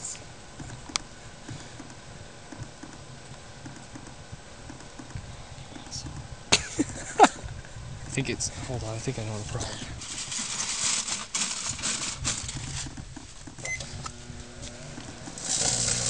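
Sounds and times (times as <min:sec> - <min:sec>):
microwave oven humming: 0:00.0 - 0:16.0
foil arcing crackles and snaps: 0:09.6 - 0:13.5.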